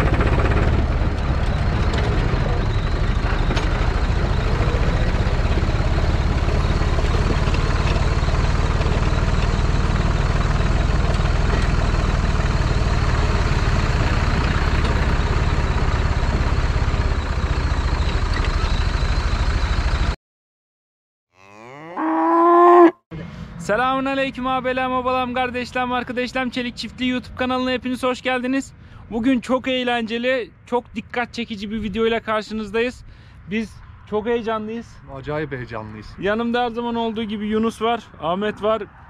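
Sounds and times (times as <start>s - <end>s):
tractor diesel engine running: 0.0s - 20.2s
short rising call: 21.4s - 23.0s.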